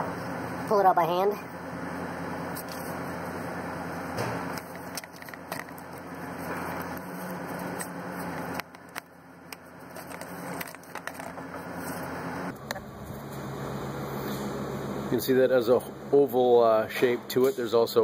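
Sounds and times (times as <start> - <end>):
steady low hum: 0.0 - 18.0
rustling and rubbing: 4.5 - 12.2.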